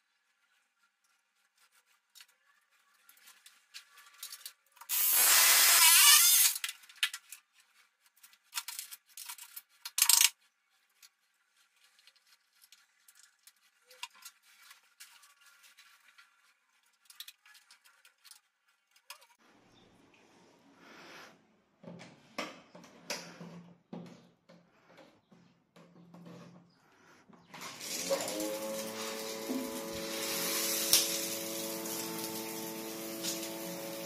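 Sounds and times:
faint rubbing and handling noises: 0:00.0 - 0:04.9, 0:06.8 - 0:19.4
power tool running in bursts: 0:27.8 - 0:34.0.

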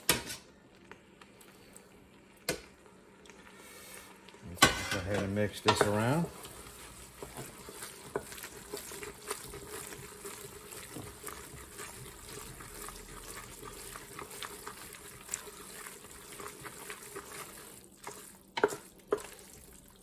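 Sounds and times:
spoon stirring wet pasta in pot: 0:04.1 - 0:20.0.

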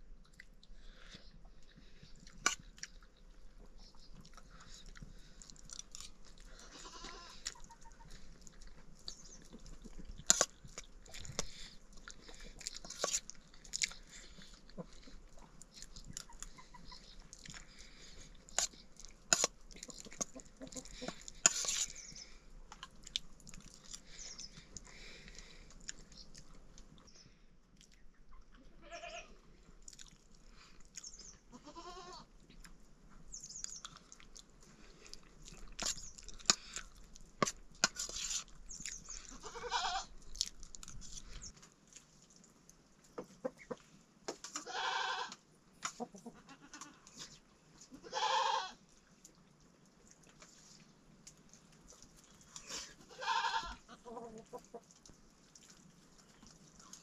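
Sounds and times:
goat bleating: 0:06.6 - 0:07.4, 0:28.6 - 0:29.4, 0:31.5 - 0:32.3, 0:39.3 - 0:40.1, 0:44.6 - 0:45.4, 0:46.4 - 0:47.0, 0:47.9 - 0:48.8, 0:53.0 - 0:54.2.

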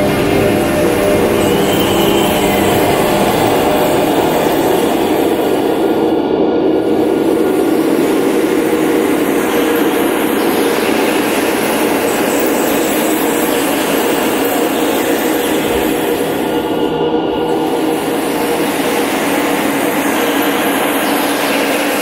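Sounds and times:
electronic rumbling drone: 0:00.0 - 0:21.2.

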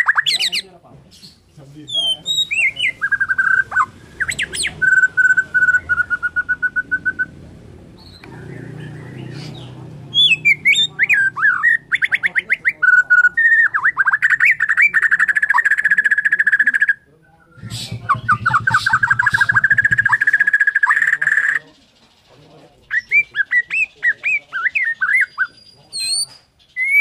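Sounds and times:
bird singing whistled phrases: 0:01.8 - 0:07.3, 0:08.0 - 0:21.6, 0:22.8 - 0:27.0
bird rapid rattle: 0:17.6 - 0:24.2.

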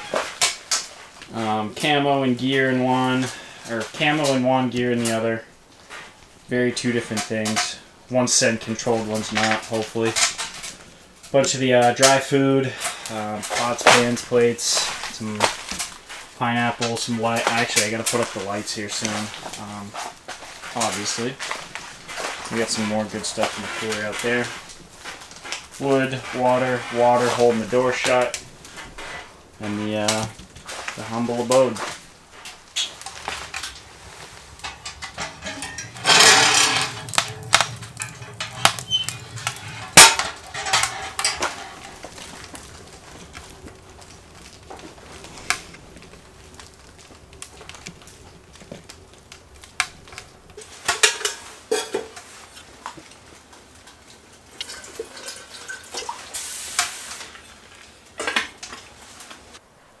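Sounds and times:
metal cookware clinking: 0:34.5 - 0:42.1, 0:50.6 - 0:52.2.

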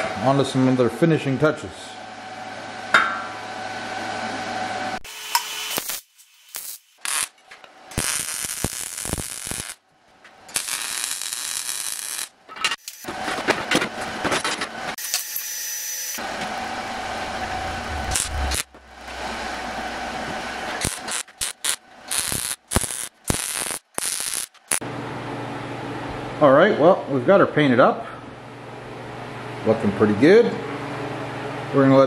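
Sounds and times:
welding arc crackle: 0:05.1 - 0:09.8, 0:10.5 - 0:13.3, 0:15.0 - 0:24.8.

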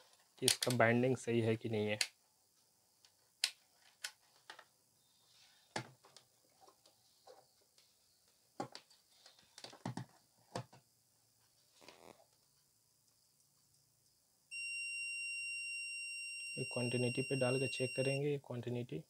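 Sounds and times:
multimeter probes clicking and tapping: 0:00.4 - 0:00.8.

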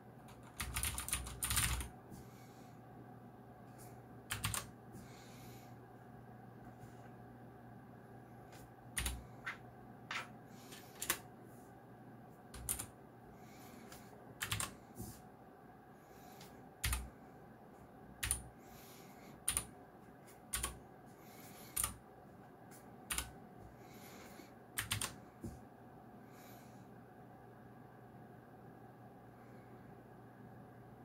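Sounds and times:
mechanical keyboard clicks: 0:00.4 - 0:01.9, 0:04.3 - 0:04.7, 0:24.8 - 0:25.2.

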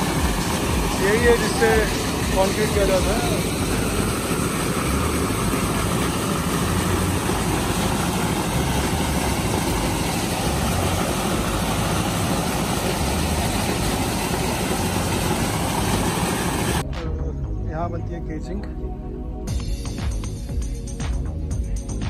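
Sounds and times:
slurry gushing from a pipe: 0:00.0 - 0:16.8
engine running: 0:00.0 - 0:22.0.

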